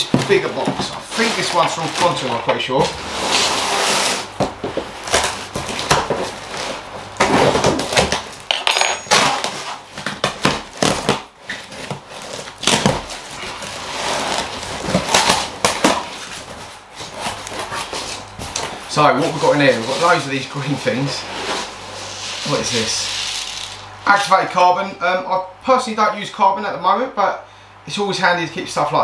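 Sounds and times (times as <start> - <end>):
cardboard tearing and rustling: 0.0 - 8.5, 9.1 - 23.9
contents knocking and clattering: 8.5 - 9.6.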